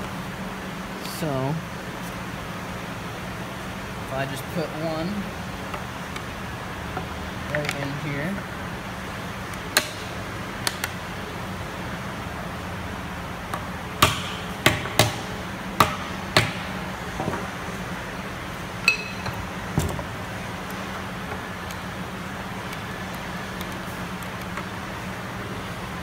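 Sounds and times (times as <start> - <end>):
steady low hum: 0.0 - 26.0
short ringing clink: 18.9 - 19.4.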